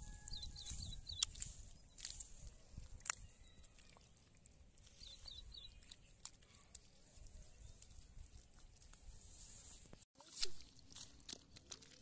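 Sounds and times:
faint bird chirps: 0.0 - 2.3, 3.2 - 6.7.

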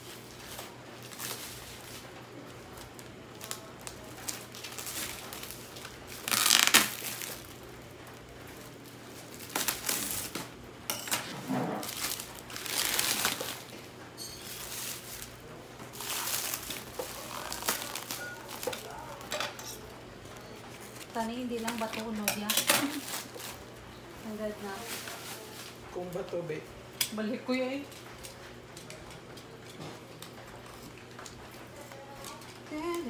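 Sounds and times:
plastic wrap crinkling: 0.0 - 10.6, 11.2 - 26.6.

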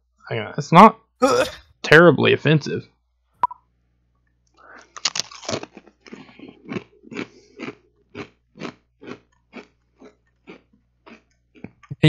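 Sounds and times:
man crunching chips: 4.7 - 11.9.

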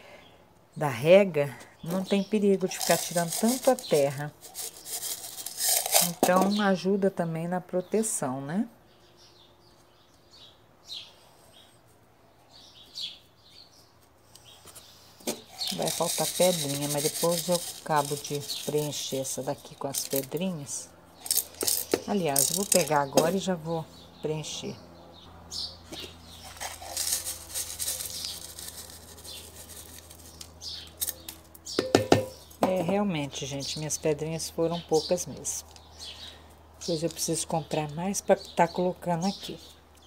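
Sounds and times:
faint background hum: 0.0 - 40.0
pebbles pattering into a pot: 2.0 - 6.6, 15.2 - 23.4, 26.0 - 32.9.

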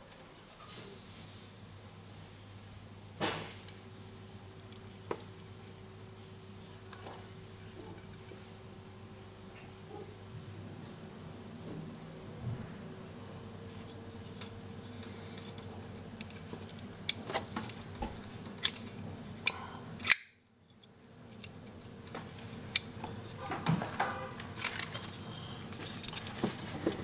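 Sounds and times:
folding knife clicking open and shut: 20.0 - 20.4.

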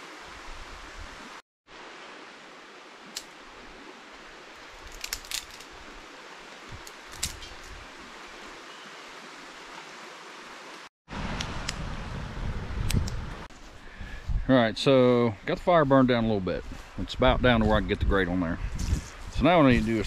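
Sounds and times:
kindling clicks and snaps: 3.1 - 3.3, 4.8 - 5.7, 6.8 - 7.8, 12.8 - 13.2.

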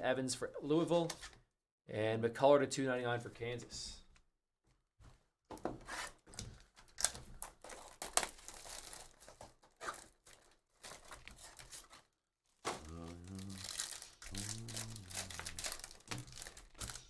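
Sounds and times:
plastic shrink-wrap crinkling: 6.9 - 17.0.

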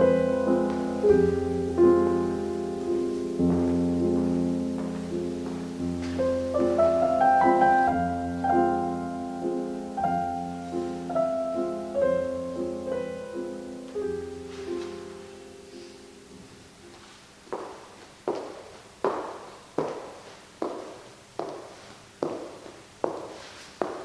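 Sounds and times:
solo piano music: 0.0 - 17.9.

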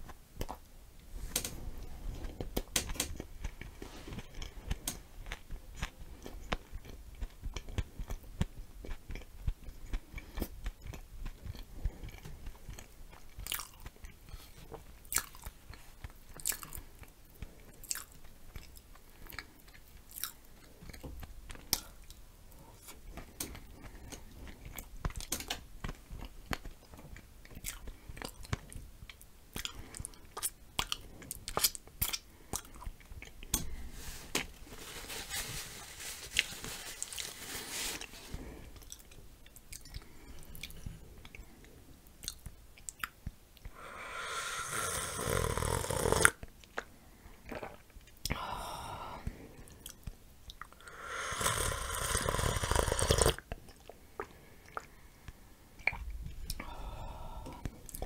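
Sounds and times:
person chewing food: 1.8 - 34.0, 38.3 - 58.0
hissing noise: 43.7 - 46.0.

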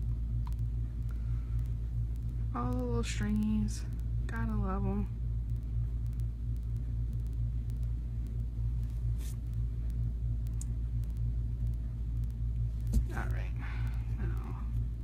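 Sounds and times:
soft hiss: 0.0 - 15.0
steady low hum: 0.0 - 15.0.

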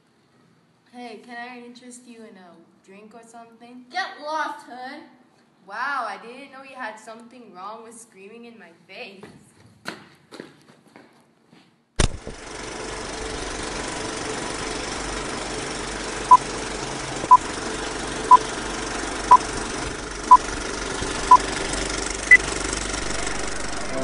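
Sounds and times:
film projector rattle and hiss: 12.0 - 24.0.

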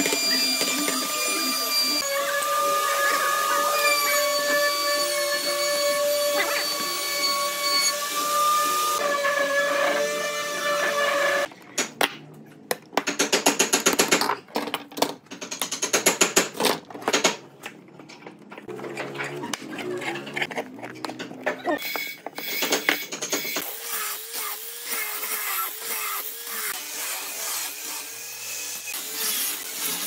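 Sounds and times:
power tool motor whining: 0.0 - 11.5.

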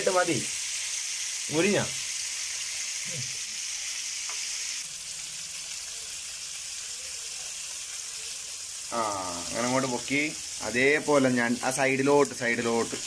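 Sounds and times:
fish sizzling in oil: 0.0 - 13.0.

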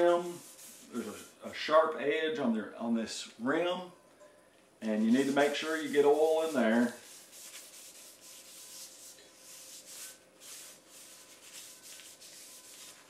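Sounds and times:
hand scrubbing cast iron pan: 5.0 - 13.0.

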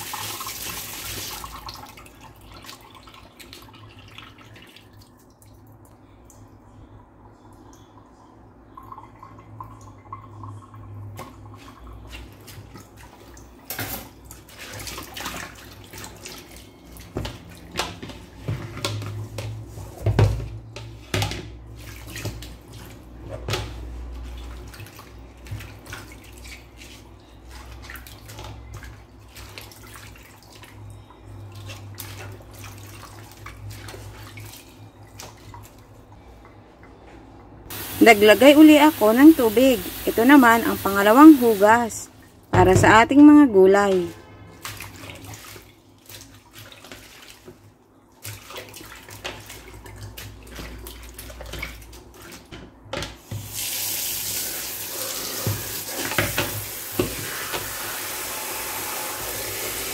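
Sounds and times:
hands washing leaves in water: 11.2 - 36.4, 37.7 - 59.9.

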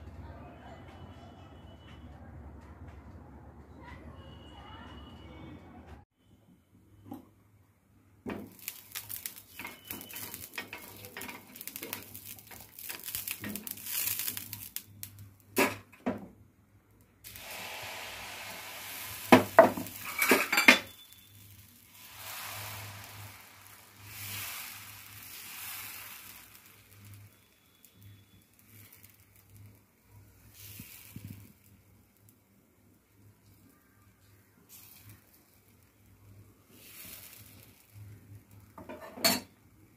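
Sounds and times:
oiled pan sizzling: 8.2 - 16.3, 17.2 - 39.9
metal utensils scraping pan: 8.7 - 12.3, 19.2 - 21.1.

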